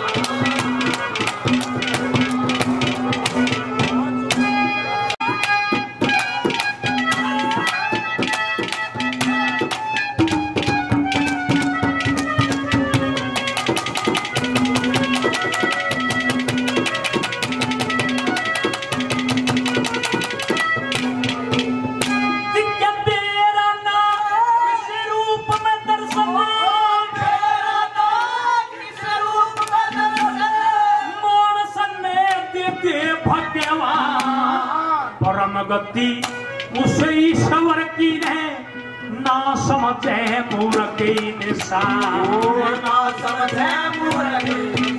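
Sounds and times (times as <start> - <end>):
quick steady drum strokes: 0.0 - 22.4, 40.0 - 44.9
man singing: 22.4 - 44.9.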